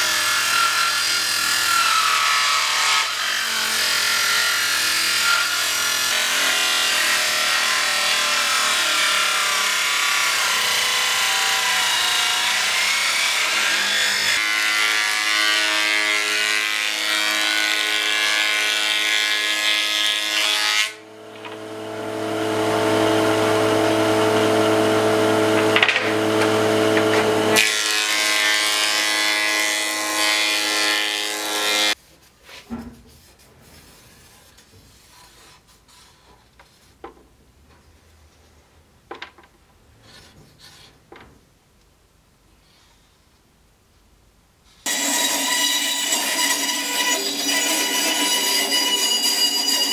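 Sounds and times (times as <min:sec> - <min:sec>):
table saw cutting wood: 0:00.0 - 0:32.0, 0:44.8 - 0:49.9
planer humming: 0:21.0 - 0:27.8
wooden strips knocking: 0:25.5 - 0:27.7.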